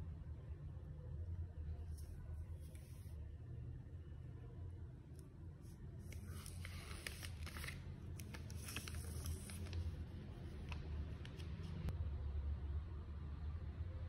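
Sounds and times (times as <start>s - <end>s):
low steady hum: 0.0s - 14.0s
plastic film crinkling: 6.1s - 11.9s.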